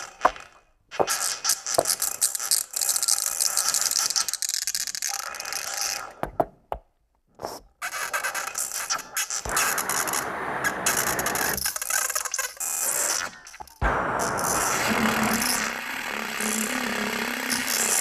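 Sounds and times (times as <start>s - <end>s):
crackling electronic noise music: 9.4s - 18.0s.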